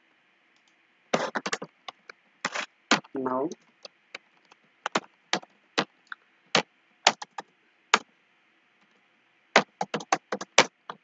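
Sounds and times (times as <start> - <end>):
keyboard typing: 7.0 - 7.4, 9.6 - 11.0.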